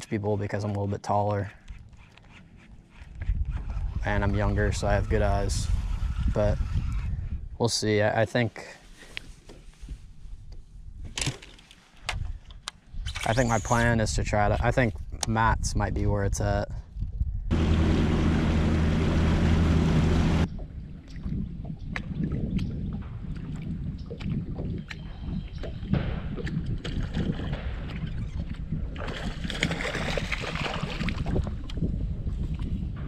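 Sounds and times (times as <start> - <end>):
water: 0.0 - 7.1, 8.8 - 32.9
wind: 0.0 - 33.0
boat engine hum with hiss: 17.5 - 20.5.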